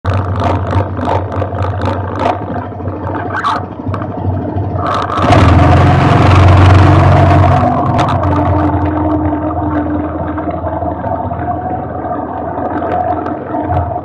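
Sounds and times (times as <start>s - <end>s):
wind and tyre noise: 0.0s - 14.0s
quad bike engine revving: 0.1s - 10.4s.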